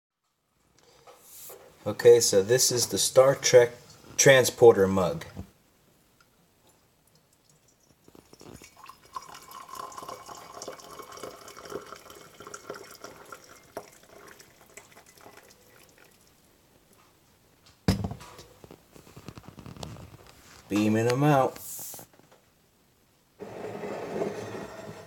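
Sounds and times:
water pouring into a mug: 7.4 - 16.3.

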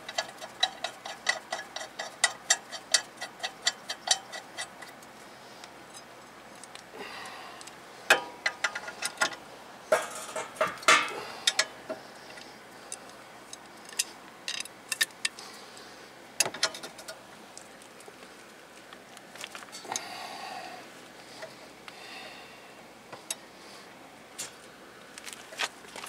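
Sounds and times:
metal tools clinking: 0.0 - 4.9, 8.1 - 11.8
ratchet clicking: 0.0 - 5.0.

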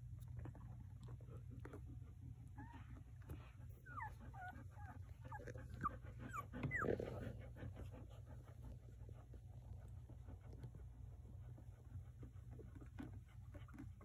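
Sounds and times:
dog panting: 1.1 - 14.0
puppies squeaking and whimpering: 3.8 - 7.2.

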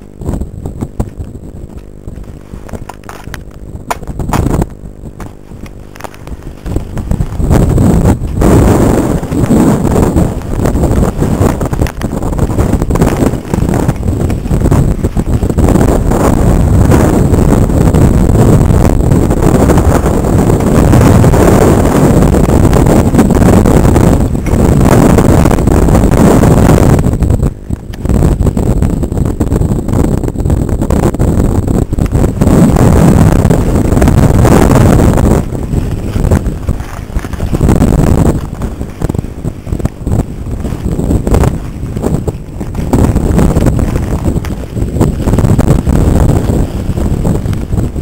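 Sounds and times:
bike rattles and knocks: 0.0 - 18.1
bike rolling vibration: 0.0 - 48.0
wind buffeting microphone: 0.0 - 48.0.

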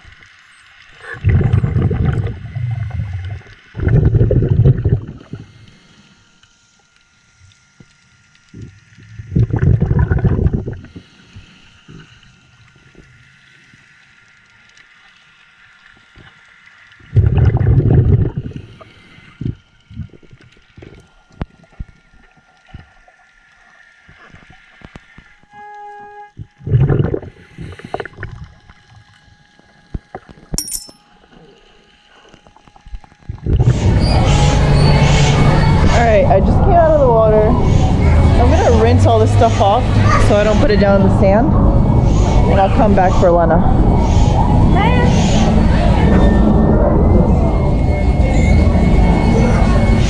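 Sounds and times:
diver's bubbles rushing underwater: 1.0 - 5.5, 8.5 - 11.0, 17.0 - 18.7, 26.6 - 28.8
faint crackling clicks: 5.2 - 17.1, 18.4 - 25.8.

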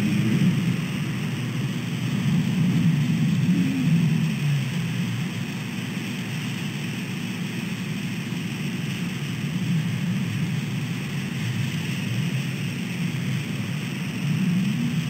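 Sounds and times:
faint rain hiss: 0.0 - 15.0
road traffic rumble: 0.0 - 15.0.

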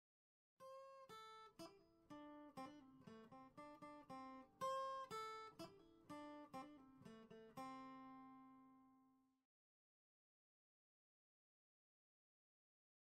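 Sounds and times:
plucked string instrument: 0.6 - 8.9.

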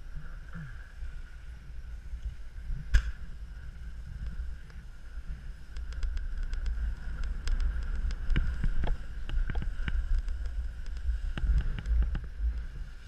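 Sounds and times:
wind buffeting microphone: 0.8 - 13.0
clicks and crunches on snow: 3.7 - 13.0.

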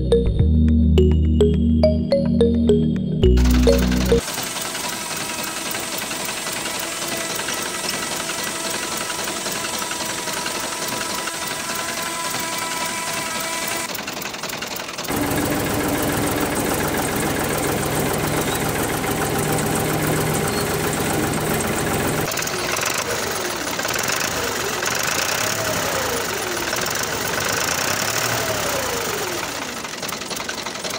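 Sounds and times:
small electric motor whine: 4.2 - 14.1.

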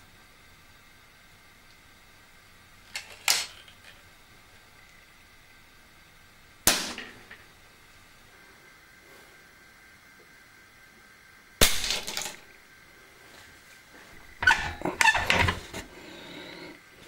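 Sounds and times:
hands handling pipe and cardboard: 14.1 - 16.0.

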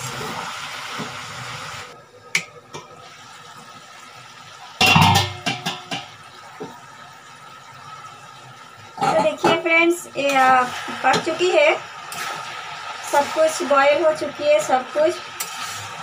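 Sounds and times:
cabbage sizzling in pan: 0.0 - 2.0, 2.8 - 16.0
metal pan lid clatter: 4.8 - 6.1.

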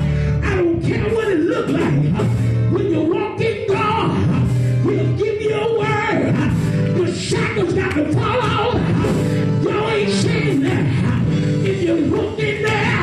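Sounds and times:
amplified band with drums: 0.0 - 13.0
man singing into microphone: 0.3 - 13.0.

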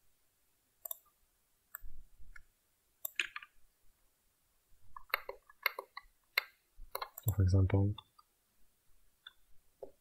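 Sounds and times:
computer mouse clicks: 0.8 - 3.6, 4.9 - 7.4.

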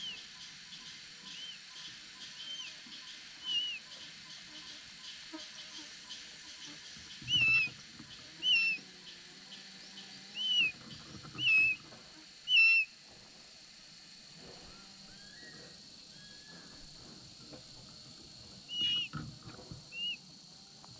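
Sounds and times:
eagle whistled calls: 3.4 - 3.8, 7.3 - 7.7, 8.4 - 8.8, 10.4 - 10.8, 11.4 - 11.8, 12.5 - 12.9, 18.7 - 19.2, 19.9 - 20.2.

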